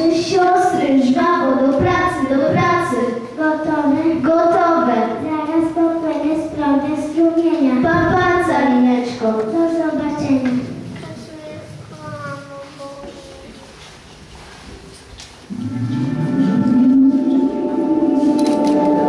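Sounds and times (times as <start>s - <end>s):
child singing into a microphone: 0.1s - 13.5s.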